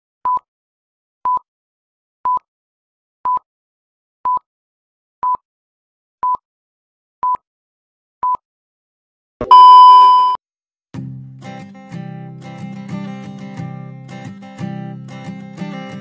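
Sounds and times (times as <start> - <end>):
countdown beeps: 9.4 - 10.4
acoustic guitar music: 11.0 - 16.0.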